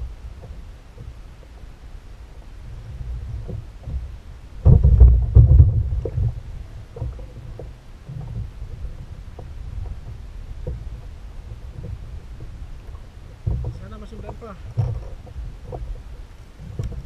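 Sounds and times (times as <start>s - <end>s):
low rumble: 0.0s - 17.0s
thumps on kayak hull: 3.2s - 11.0s, 11.7s - 17.0s.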